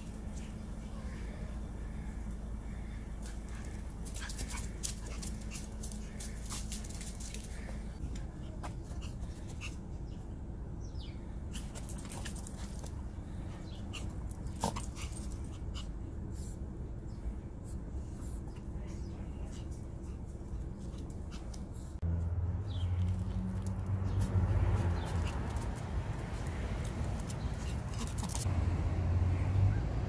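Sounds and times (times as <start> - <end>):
dogs playing and scuffling: 0.0 - 10.3, 11.5 - 16.7, 17.6 - 28.5
sharp clicks and rustles: 3.2 - 8.3, 23.0 - 28.5.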